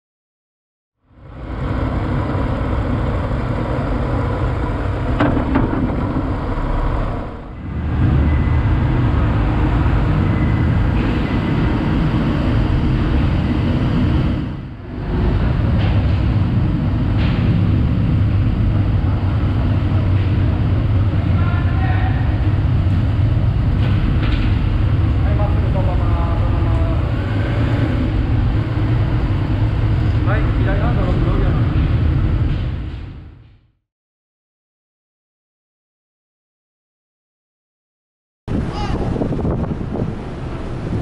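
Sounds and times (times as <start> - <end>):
motorcycle engine low rumble: 1.0 - 33.4
wind and road noise: 1.0 - 33.8, 38.5 - 41.0.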